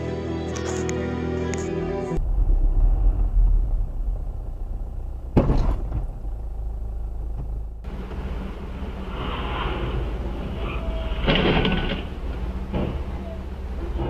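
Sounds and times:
car cabin road rumble: 1.5 - 14.0
sharp knock: 5.4 - 6.1.

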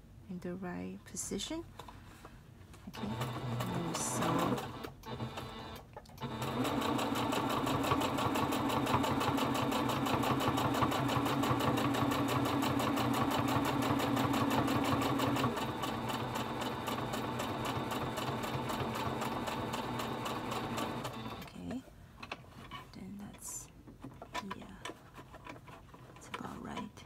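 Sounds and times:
sewing machine stitching: 2.9 - 21.6.

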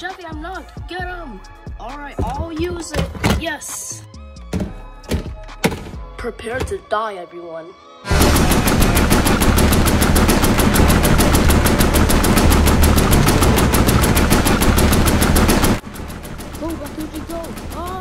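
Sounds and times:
automatic machine-gun fire: 8.1 - 18.0.

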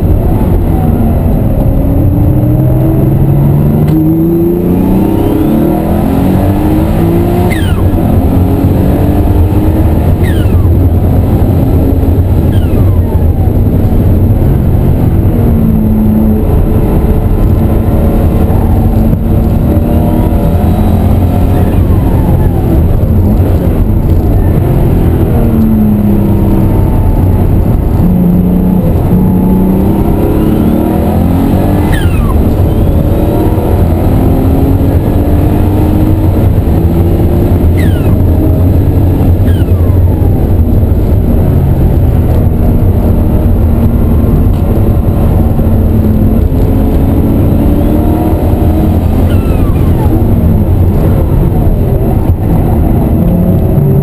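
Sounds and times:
turbocharged car engine revving: 0.0 - 54.0.

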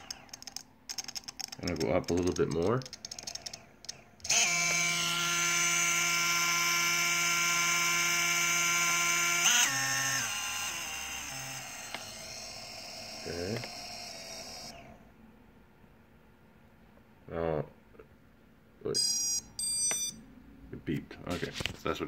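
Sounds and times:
clicks: 0.0 - 4.3
drone motor electric whine: 4.2 - 15.2.

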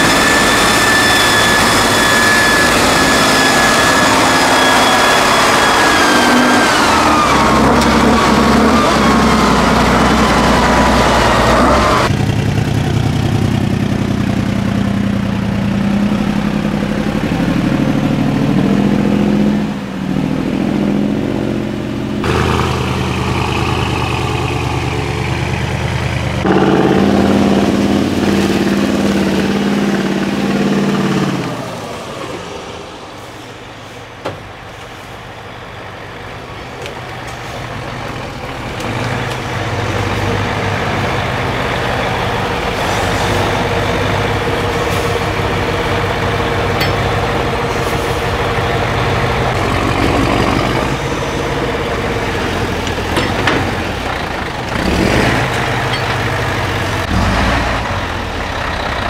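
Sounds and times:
diesel truck engine under load: 0.0 - 59.0.

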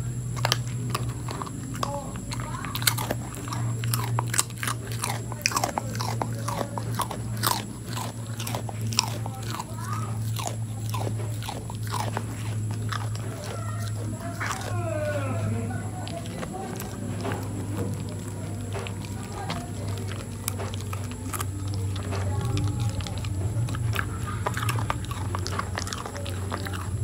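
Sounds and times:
dog crunching a biscuit: 0.0 - 27.0
steady low hum: 0.0 - 27.0.

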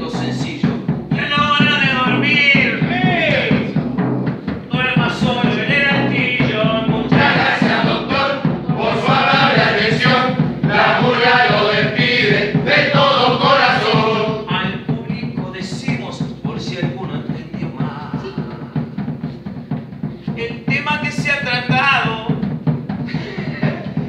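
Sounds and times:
group of people singing: 5.4 - 14.5.

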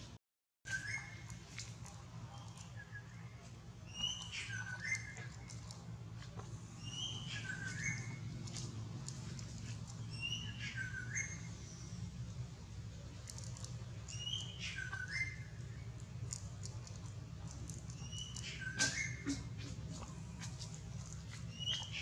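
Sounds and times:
steady low hum: 0.8 - 22.0
bird whistling: 3.9 - 5.2, 6.8 - 8.2, 10.2 - 11.5, 14.1 - 15.5, 18.0 - 19.5.

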